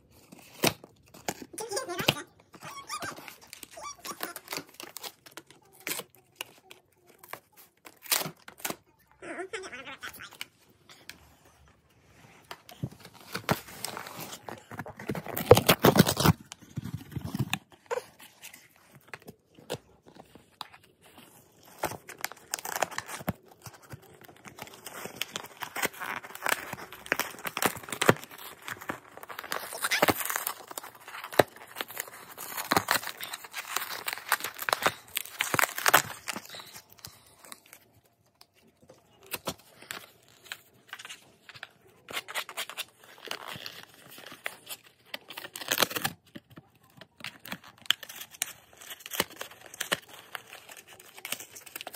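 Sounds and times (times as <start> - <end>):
dog tearing cardboard: 13.2 - 18.4, 21.8 - 36.5.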